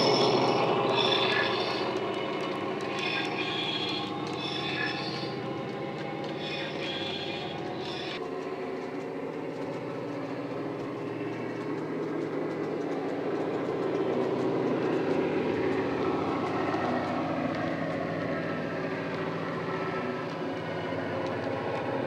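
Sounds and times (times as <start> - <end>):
high whine shifting pitch: 0.0 - 8.2
diesel locomotive engine running: 0.0 - 22.0.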